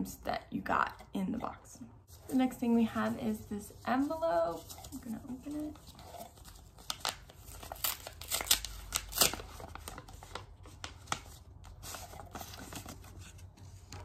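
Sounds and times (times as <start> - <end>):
envelope paper tearing and rustling: 4.0 - 13.5.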